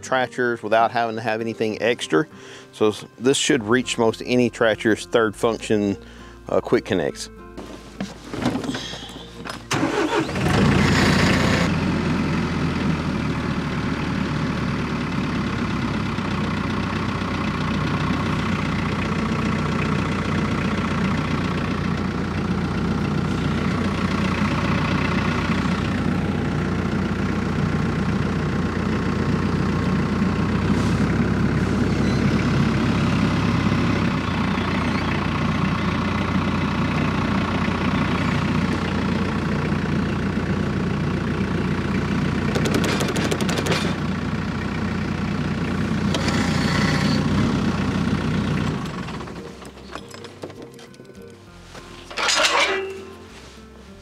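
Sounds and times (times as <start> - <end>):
tractor diesel engine idling: 0.0 - 54.0.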